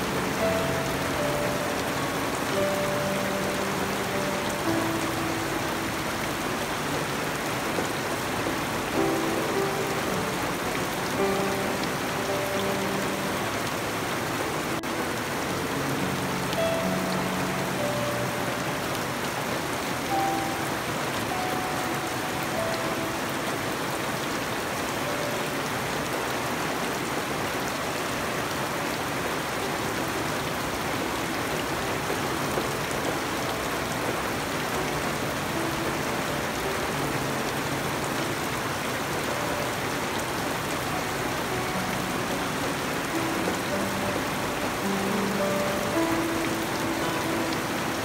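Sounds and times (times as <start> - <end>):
rain on foliage: 0.0 - 48.0.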